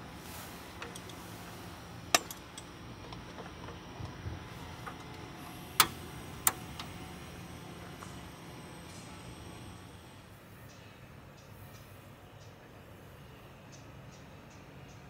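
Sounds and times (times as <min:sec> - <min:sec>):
waffle iron metal clicks: 0:00.8 - 0:01.3, 0:02.1 - 0:09.6.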